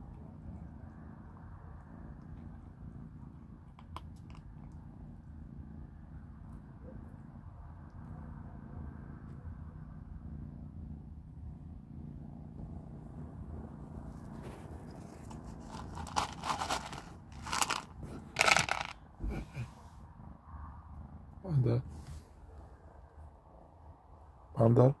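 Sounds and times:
low steady hum: 0:00.0 - 0:25.0
kittens crunching dry kibble: 0:02.0 - 0:05.1, 0:14.0 - 0:19.4.

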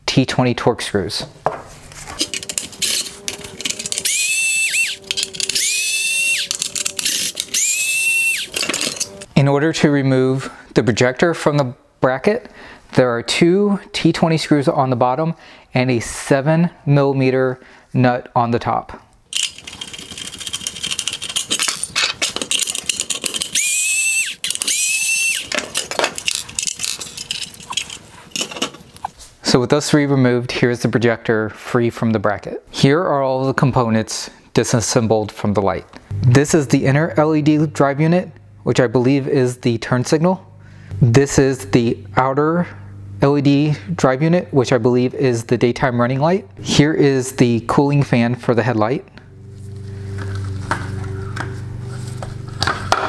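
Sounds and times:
plastic and metal parts rattling: 0:02.0 - 0:09.3, 0:19.3 - 0:24.8, 0:25.4 - 0:29.1
electric screwdriver whine: 0:02.2 - 0:09.3, 0:23.4 - 0:25.6.

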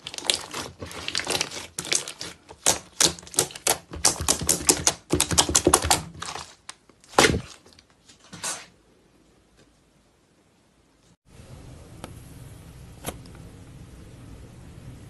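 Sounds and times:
slime crackling and popping: 0:00.0 - 0:07.6.

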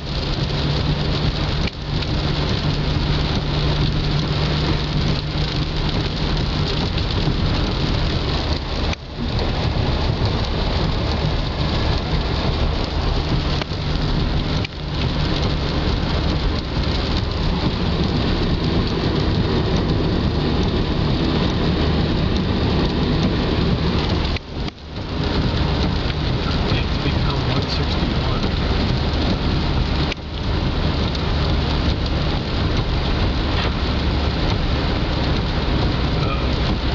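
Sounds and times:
heavy rain on car: 0:00.0 - 0:36.9
tyres hissing on wet road: 0:00.0 - 0:36.9.

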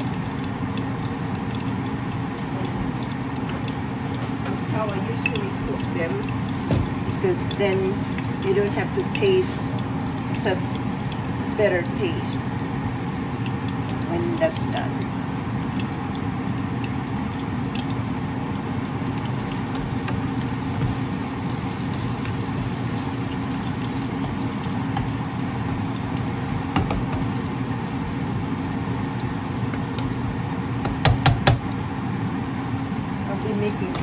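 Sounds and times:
onions sizzling in oil: 0:00.0 - 0:34.0
spatula knocking against pan: 0:26.7 - 0:27.3, 0:30.8 - 0:31.7.

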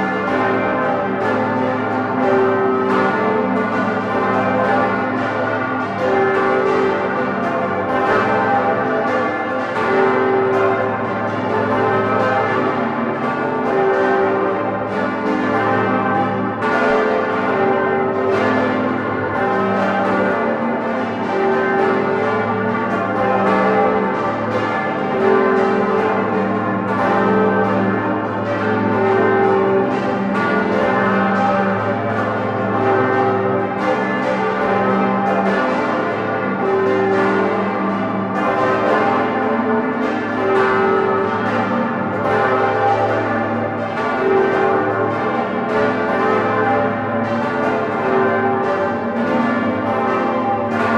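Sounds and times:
church bells ringing: 0:00.0 - 0:50.9.

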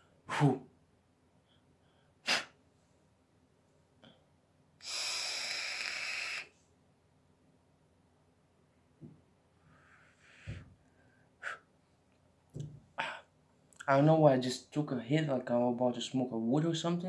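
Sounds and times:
person exhaling whew: 0:00.3 - 0:00.6, 0:04.8 - 0:06.6
sharp breath: 0:02.2 - 0:02.6, 0:04.8 - 0:06.6, 0:09.7 - 0:11.7.

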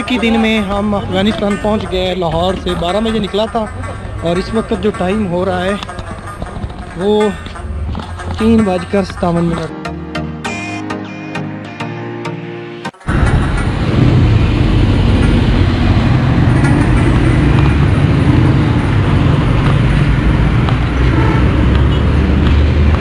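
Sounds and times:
passing traffic: 0:00.0 - 0:09.7, 0:13.0 - 0:23.0
heavy low rumble: 0:13.1 - 0:21.7.

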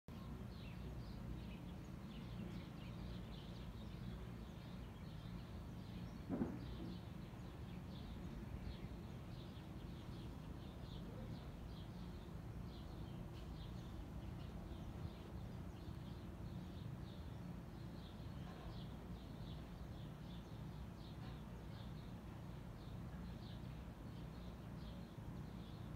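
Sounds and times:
brief thump: 0:06.2 - 0:07.1.

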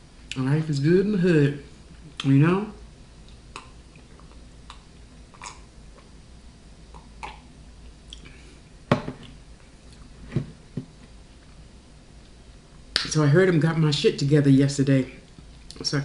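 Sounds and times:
mouth clicks: 0:03.3 - 0:05.7, 0:06.9 - 0:07.5
sipping and chewing: 0:03.3 - 0:06.1
plastic mug knocking on table: 0:08.9 - 0:09.2.

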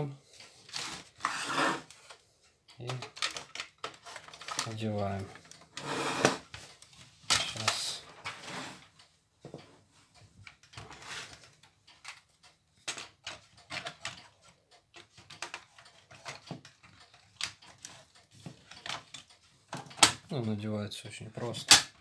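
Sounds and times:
plastic and metal parts rattling: 0:00.4 - 0:09.0, 0:10.4 - 0:22.0.

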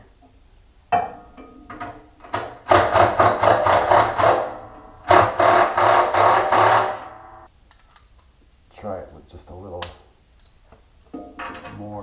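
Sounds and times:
cordless drill running: 0:05.1 - 0:07.1.

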